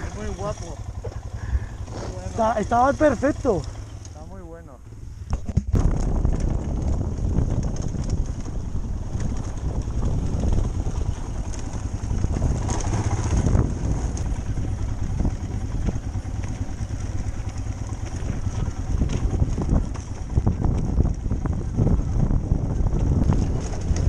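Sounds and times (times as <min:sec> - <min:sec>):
motorcycle engine running: 0:00.0 - 0:24.0
knocks and rattles over stones: 0:05.3 - 0:14.6, 0:17.3 - 0:21.2, 0:22.9 - 0:24.0.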